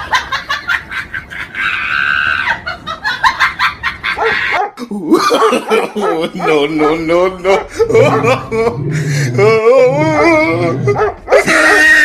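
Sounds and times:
dogs yelping and snarling: 0:04.0 - 0:12.0
high dog squeal: 0:10.1 - 0:12.0.

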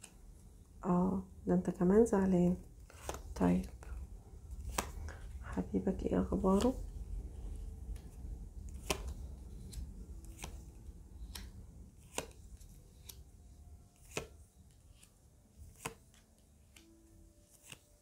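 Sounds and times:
cards clicking and tapping on table: 0:02.9 - 0:03.8, 0:04.6 - 0:05.2, 0:08.8 - 0:10.6, 0:11.2 - 0:13.2, 0:14.0 - 0:15.1, 0:15.7 - 0:16.9, 0:17.5 - 0:17.9.

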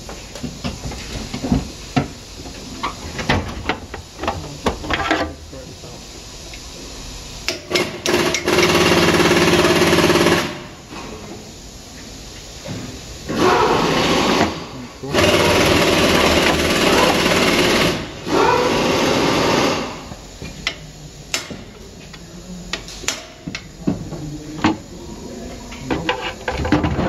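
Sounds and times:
pneumatic tool bursts: 0:07.4 - 0:10.8, 0:13.3 - 0:20.1.

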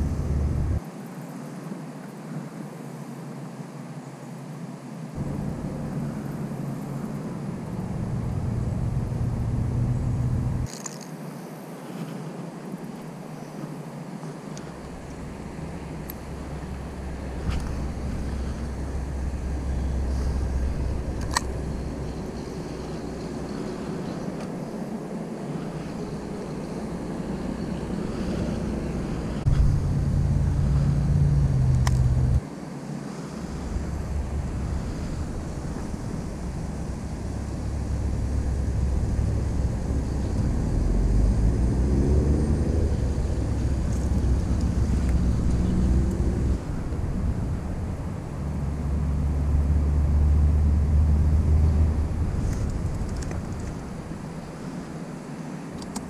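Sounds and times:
wind buffeting microphone: 0:00.0 - 0:00.8, 0:05.2 - 0:10.7, 0:14.7 - 0:32.4, 0:33.3 - 0:55.0.

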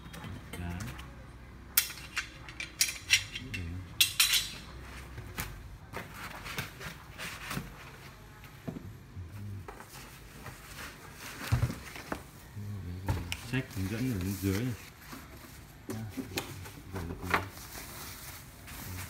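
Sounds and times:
metal brackets clinking: 0:01.8 - 0:04.7.

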